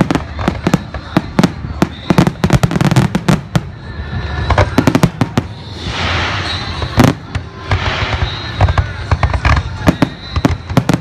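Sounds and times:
fireworks bangs: 0.0 - 11.0
fireworks crackling: 0.0 - 11.0
hissing crackle: 5.2 - 10.7.

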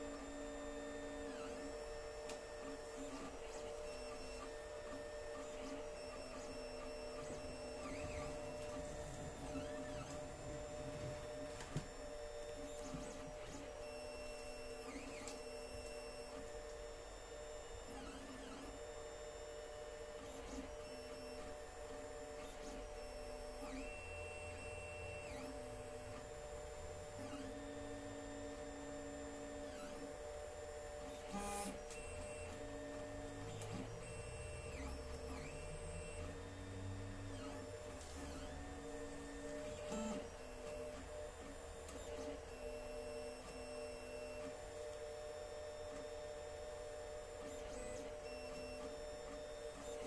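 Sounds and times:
stepper motors whining: 0.0 - 16.5, 20.2 - 45.0
cooling fan humming: 7.1 - 12.9.

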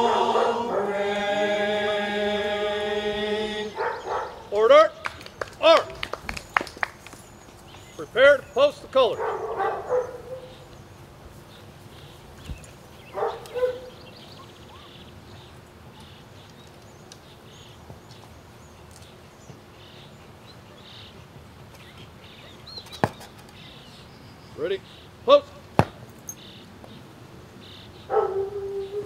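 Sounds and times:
dog barking: 0.0 - 0.9, 3.8 - 4.5, 9.1 - 10.6, 13.1 - 14.0, 28.1 - 29.0.

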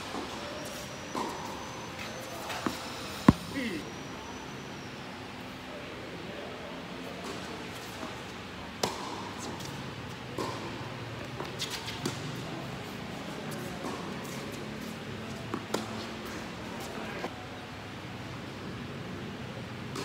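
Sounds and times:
tennis ball bouncing: 2.4 - 3.8
rackets striking tennis ball: 2.5 - 3.8.

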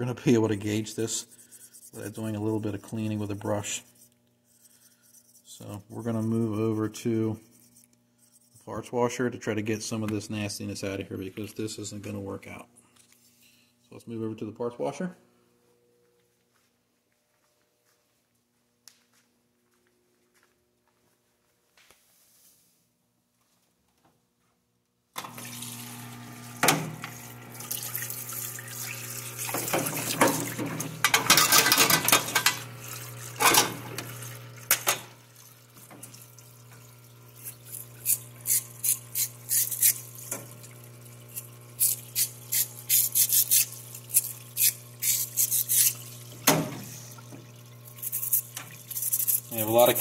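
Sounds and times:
scrubbing strokes: 0.5 - 8.8, 37.3 - 46.3, 46.9 - 50.0
pump humming: 25.2 - 50.0
liquid pouring and splashing: 25.3 - 50.0.

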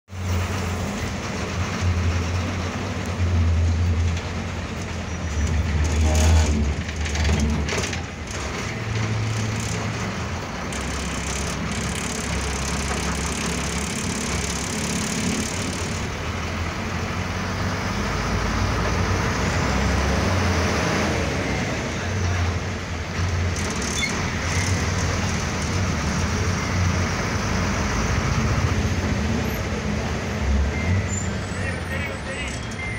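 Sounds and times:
bus engine running: 0.1 - 32.9
road noise inside bus: 0.1 - 32.9
sharp knocks and rattles: 4.0 - 16.1.

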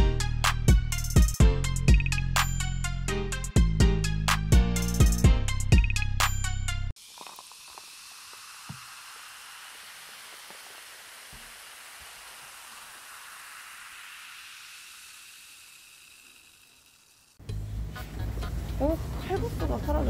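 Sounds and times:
beer fizzing: 7.0 - 17.4.

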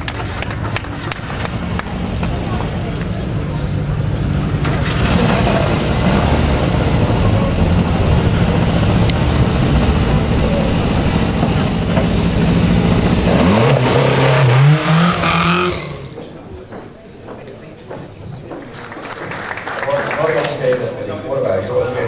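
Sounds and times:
rally car engine passing: 0.0 - 16.7.

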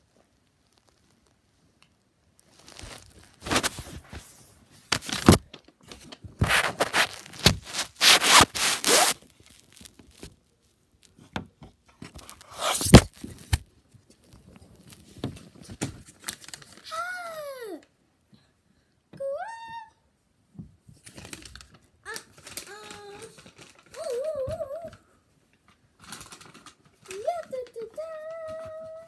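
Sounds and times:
cloth rubbing over microphone: 2.5 - 5.4, 6.4 - 10.0, 12.2 - 13.1.

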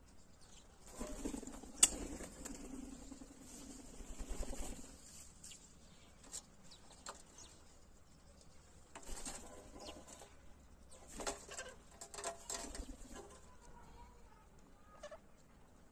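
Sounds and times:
wings fluttering: 0.8 - 7.6, 8.4 - 13.7.

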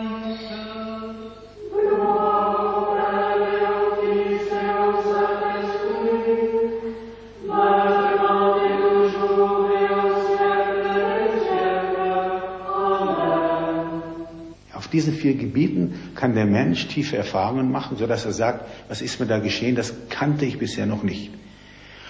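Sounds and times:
choir chanting: 0.0 - 14.6.

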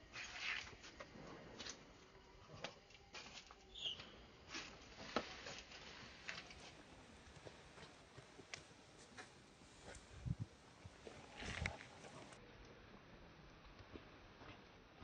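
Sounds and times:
monkeys scuffling on concrete: 2.5 - 12.4.

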